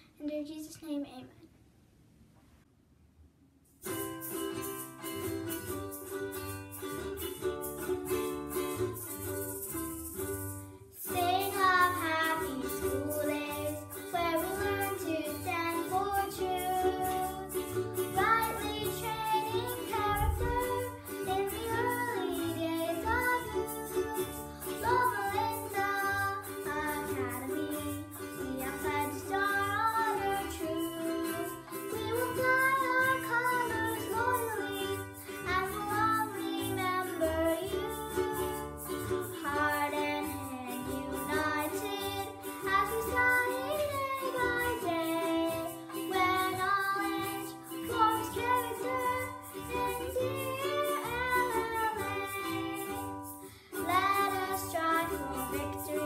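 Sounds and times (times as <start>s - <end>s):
instrumental accompaniment: 3.7s - 56.0s
girl singing: 10.9s - 56.0s.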